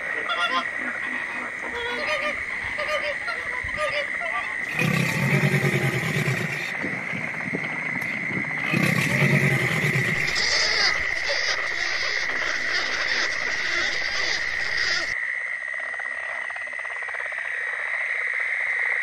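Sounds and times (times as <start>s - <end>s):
crocodilian low calls: 0.0s - 7.0s, 8.0s - 15.2s.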